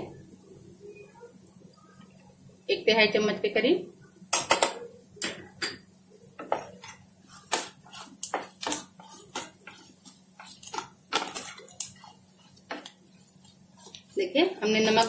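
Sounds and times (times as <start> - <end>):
spatula scraping a frying pan: 6.4 - 15.0.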